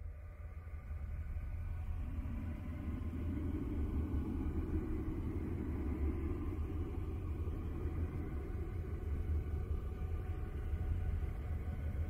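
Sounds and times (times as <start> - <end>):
faint steady tones: 0.0 - 12.0
deep rumbling noise: 0.5 - 12.0.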